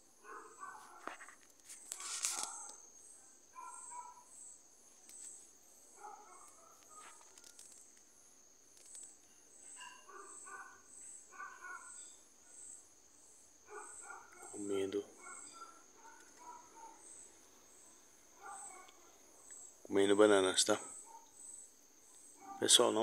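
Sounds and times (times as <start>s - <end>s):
night insects trilling: 0.0s - 23.0s
brief rustle: 0.8s - 2.8s, 6.5s - 8.1s.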